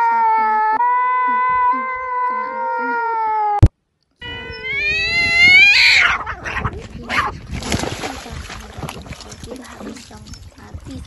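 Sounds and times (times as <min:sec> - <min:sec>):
cat yowling: 0:00.0 - 0:07.3
cats hissing: 0:04.2 - 0:07.4.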